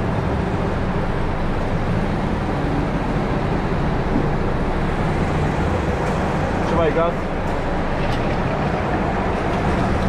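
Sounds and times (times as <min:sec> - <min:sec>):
go-kart engines running: 0:04.5 - 0:10.0.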